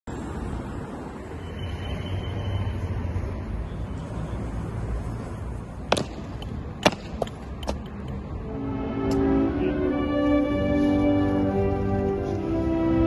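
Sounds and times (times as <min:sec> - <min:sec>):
city traffic: 0:00.0 - 0:13.0
wind: 0:00.0 - 0:13.0.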